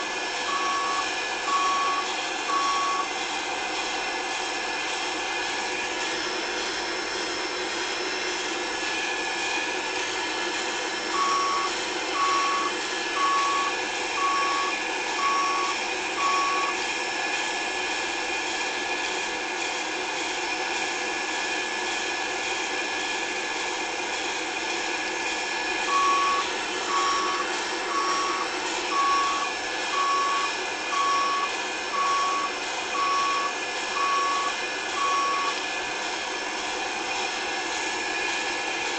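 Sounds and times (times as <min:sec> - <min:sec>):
reversing alarm beeping: 0:00.0 - 0:03.2, 0:10.8 - 0:16.8, 0:25.8 - 0:35.6
engine droning: 0:00.0 - 0:18.6, 0:23.5 - 0:38.9.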